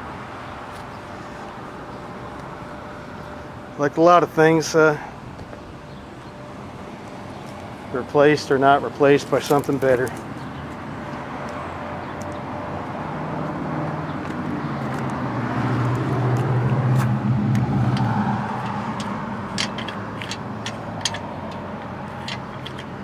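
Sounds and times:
vehicle passing: 5.8s - 23.0s.

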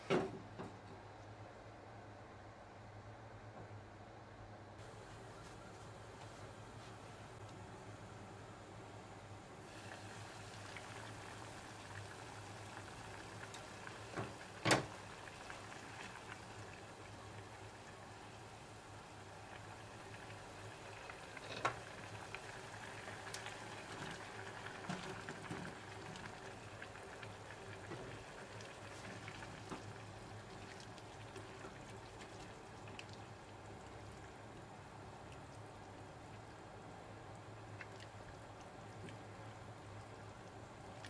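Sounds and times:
sauce simmering and bubbling: 9.6s - 41.0s.

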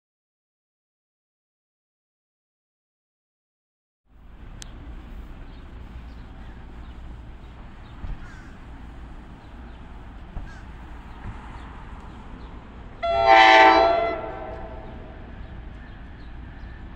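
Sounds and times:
low outdoor rumble: 4.1s - 16.9s
bird calls: 4.6s - 16.9s.

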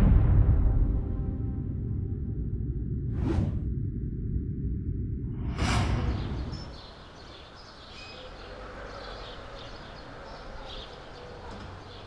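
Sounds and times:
whoosh with low rumble: 0.0s - 7.6s
birds chirping: 5.9s - 12.0s
street ambience: 5.9s - 12.0s.

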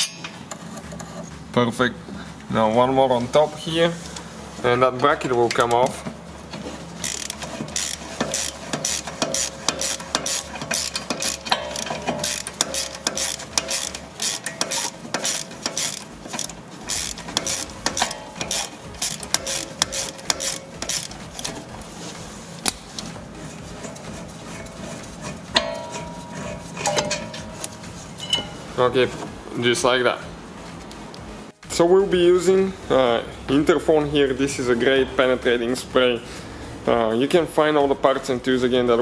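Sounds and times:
ratchet wrench clicking: 7.0s - 21.6s.

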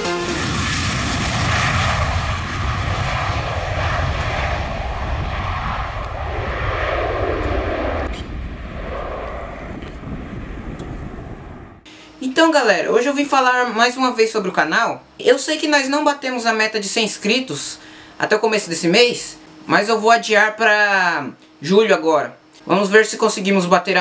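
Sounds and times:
jet engines roaring at takeoff: 0.0s - 12.2s.

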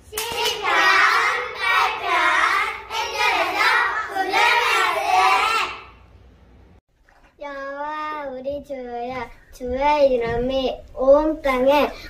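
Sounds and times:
children chanting in unison: 0.2s - 6.0s.

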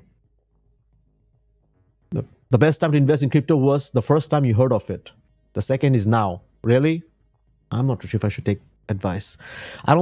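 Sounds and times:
faint background music: 0.0s - 10.0s.

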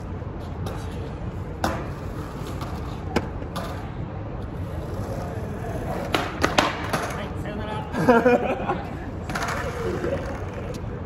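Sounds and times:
low street rumble: 0.0s - 11.0s
skateboard clacking on pavement: 1.6s - 7.4s, 9.2s - 10.9s.

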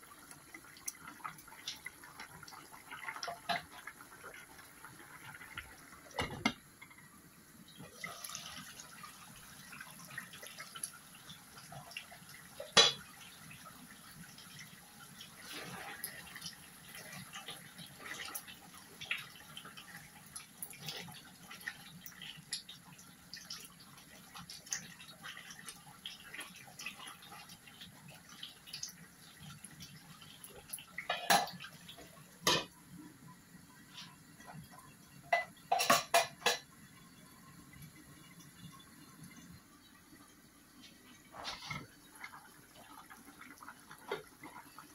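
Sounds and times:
curry bubbling and spitting in pan: 7.7s - 32.8s, 40.8s - 44.9s.

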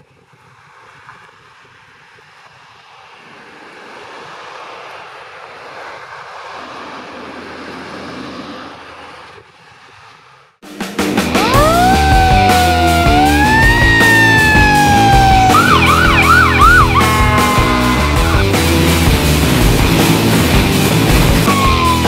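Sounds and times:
traffic driving past: 0.6s - 10.6s
ambulance: 11.3s - 19.1s, 21.3s - 22.0s.

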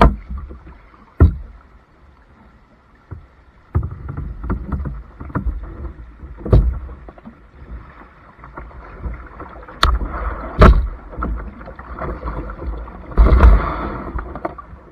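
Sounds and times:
sharp knocks on kayak hull: 0.0s - 0.6s, 1.2s - 1.6s, 6.4s - 7.2s, 9.8s - 11.4s
bow thudding onto bank: 0.0s - 1.6s, 3.1s - 7.4s, 8.5s - 14.6s
paddle splashing: 0.0s - 14.9s.

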